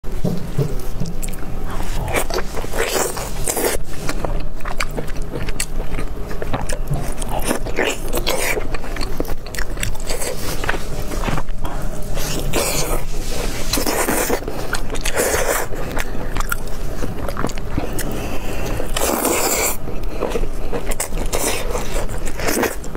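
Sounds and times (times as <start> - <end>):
sticky chewing of meat: 0.2 - 22.9.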